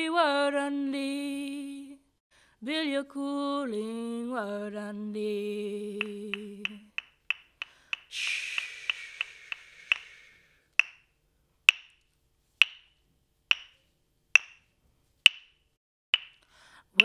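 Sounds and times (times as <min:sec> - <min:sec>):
clapsticks struck in a beat: 0:06.0 - 0:11.1, 0:11.7 - 0:12.0, 0:12.6 - 0:13.8, 0:14.4 - 0:14.7, 0:15.3 - 0:16.4
breathy hiss: 0:07.6 - 0:10.7
held sung note: 0:08.1 - 0:10.3.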